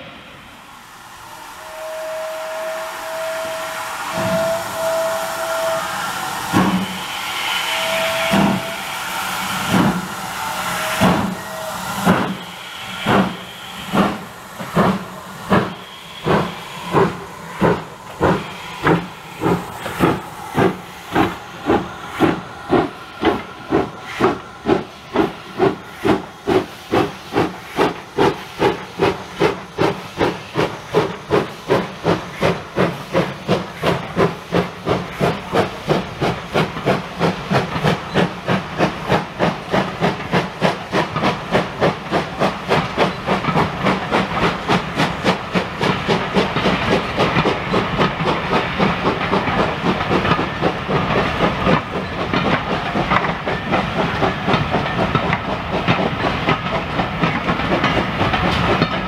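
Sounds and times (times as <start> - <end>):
steam locomotive exhaust chuffs: 0.0 - 59.0
steam locomotive whistle blasts: 0.6 - 27.9.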